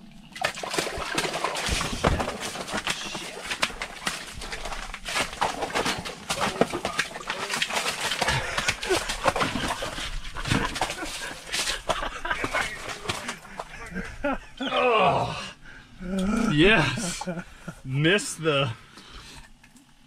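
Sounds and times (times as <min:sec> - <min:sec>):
fish flopping on wet ice: 0:00.4 - 0:14.0.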